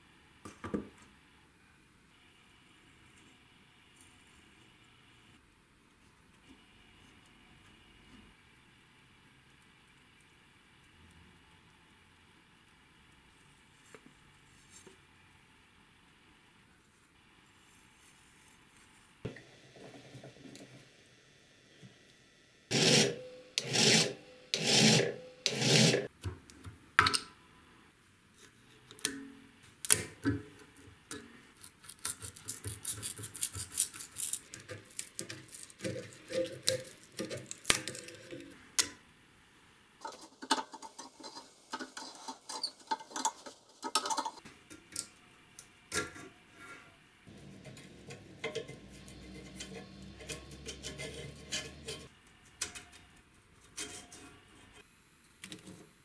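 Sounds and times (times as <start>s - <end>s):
hand file on steel: 22.7s - 26.1s
steel rod scraping and prying: 22.7s - 26.1s, 40.0s - 44.4s, 47.3s - 52.1s.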